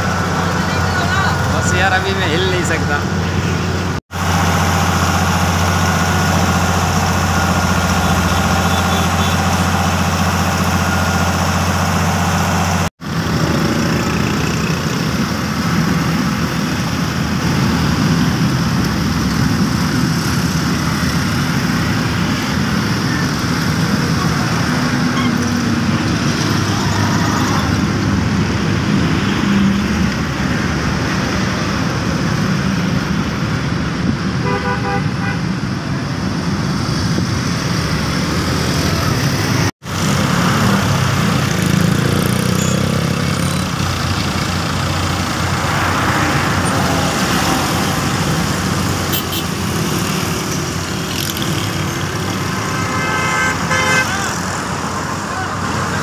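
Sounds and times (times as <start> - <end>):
road roller engine running: 0.0 - 56.0
street traffic rumble: 0.0 - 56.0
vehicle horn tooting: 8.0 - 9.7, 34.4 - 35.4, 49.1 - 49.6, 52.7 - 54.4.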